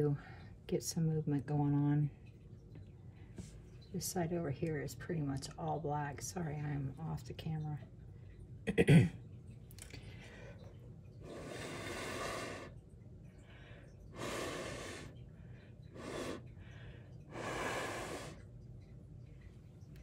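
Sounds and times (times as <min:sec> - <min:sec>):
person breathing: 0:11.2 - 0:12.8, 0:13.4 - 0:18.4.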